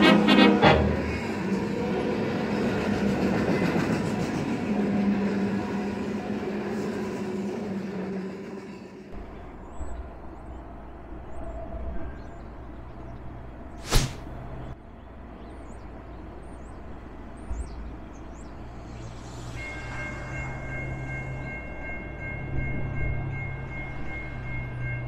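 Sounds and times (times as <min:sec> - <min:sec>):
diesel locomotive rumble: 0:00.0 - 0:09.8.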